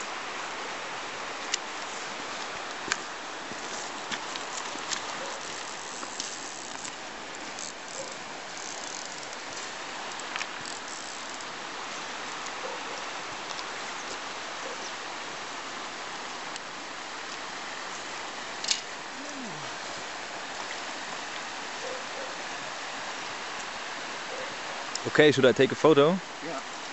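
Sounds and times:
river water over stones: 0.0 - 26.9.

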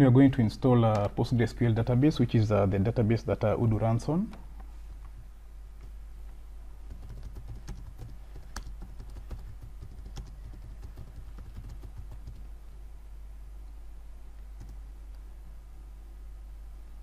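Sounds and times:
computer keyboard typing: 6.9 - 12.5, 14.6 - 14.8.

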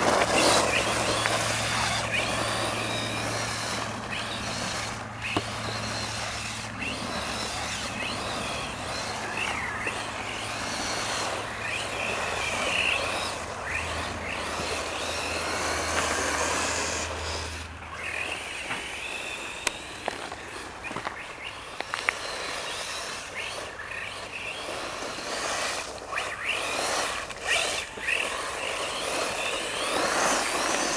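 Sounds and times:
toy car motor whining: 0.0 - 30.9
sharp ticks: 18.1 - 30.9.

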